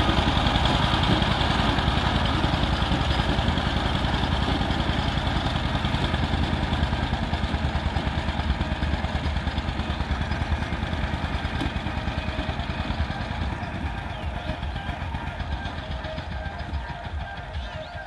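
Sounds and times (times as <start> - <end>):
diesel tiller engine running: 0.0 - 18.0.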